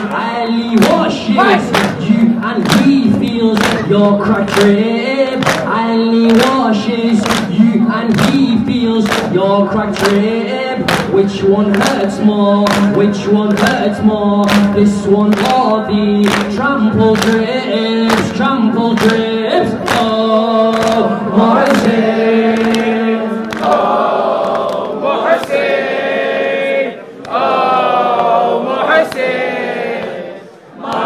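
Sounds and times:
man chanting into a microphone: 0:00.0 - 0:23.4
people beating their chests: 0:00.0 - 0:25.7.

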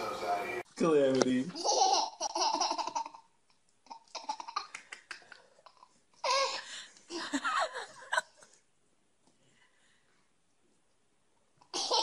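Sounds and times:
baby laughing: 0:01.6 - 0:06.7, 0:11.6 - 0:12.0.

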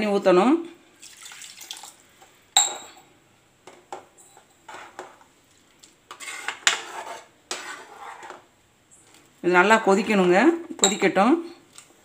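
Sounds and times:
ladle scraping metal pot: 0:06.1 - 0:08.4.

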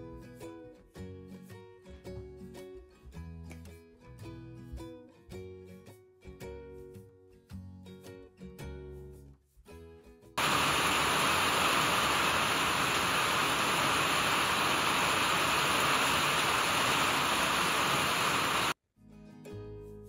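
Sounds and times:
heavy rain on trees and lawn: 0:10.4 - 0:18.8.

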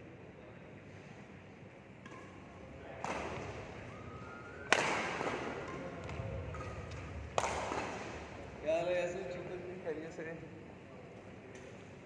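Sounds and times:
racket hitting shuttlecock: 0:03.0 - 0:03.7, 0:04.7 - 0:08.3.

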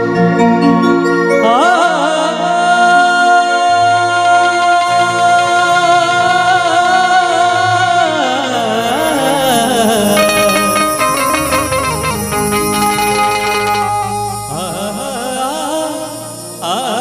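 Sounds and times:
man singing a devotional song: 0:01.4 - 0:11.7, 0:14.3 - 0:17.0
low instrumental accompaniment: 0:05.2 - 0:16.9.

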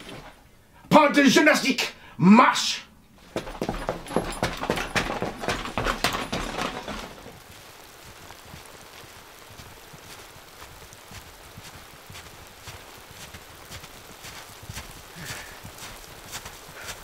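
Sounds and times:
jogging footsteps: 0:03.2 - 0:17.0
snowshoe footfalls in snow: 0:07.1 - 0:17.0.

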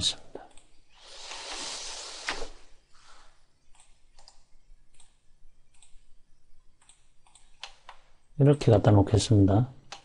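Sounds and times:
computer mouse clicking: 0:00.5 - 0:01.6, 0:03.7 - 0:06.1, 0:06.8 - 0:08.1
breathy rush of noise: 0:00.9 - 0:03.5.

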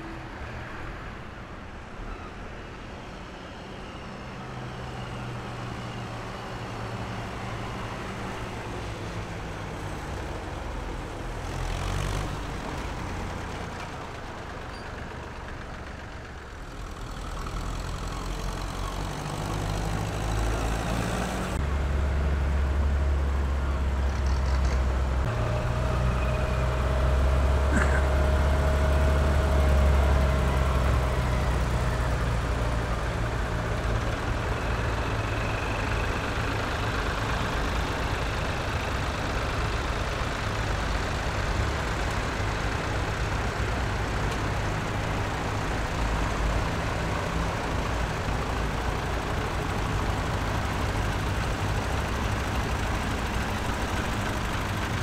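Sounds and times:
tractor engine running: 0:12.2 - 0:55.0.

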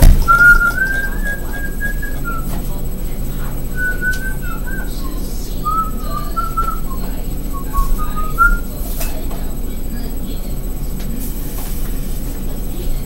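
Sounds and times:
person whistling a tune: 0:00.0 - 0:02.6, 0:03.7 - 0:08.7
steady low hum: 0:00.0 - 0:13.0.

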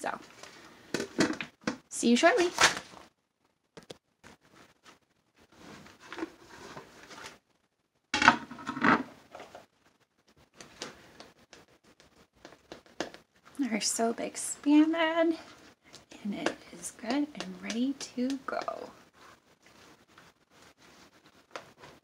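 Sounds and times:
spatula scraping and stirring soap: 0:10.3 - 0:22.0.

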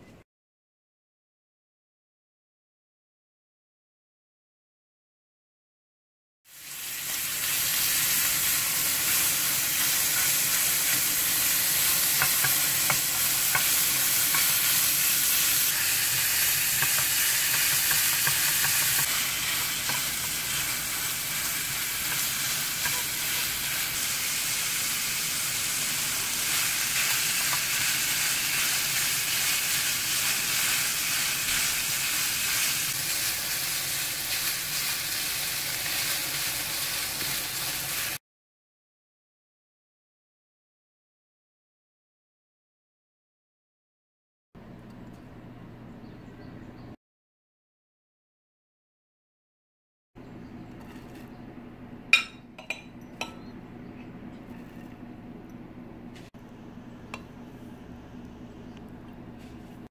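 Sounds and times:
meat sizzling in a frying pan: 0:06.5 - 0:38.2
spatula stirring in pan: 0:11.8 - 0:23.8.

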